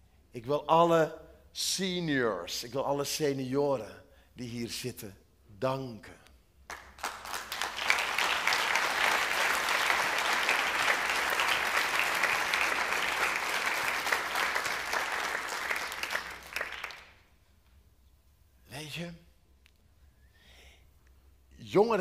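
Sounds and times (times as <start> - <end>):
crowd applauding: 6.7 - 17.3.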